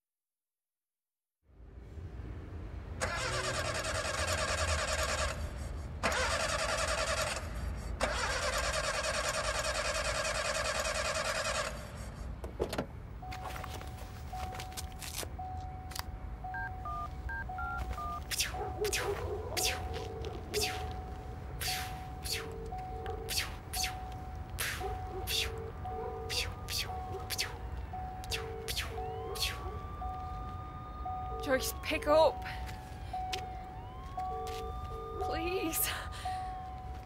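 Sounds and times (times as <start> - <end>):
telephone keypad beeps: 15.4 - 18.2.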